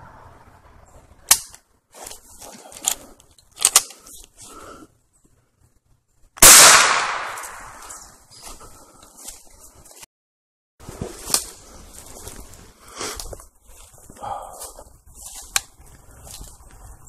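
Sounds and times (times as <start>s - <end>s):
sharp clicks and rustles: 0.9s - 4.4s
gunshot: 6.4s - 7.9s.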